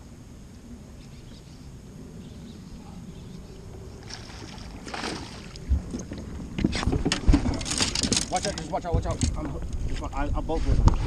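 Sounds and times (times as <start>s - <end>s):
wind and water against hull: 0.0s - 11.0s
fish splashing at surface: 4.0s - 5.7s.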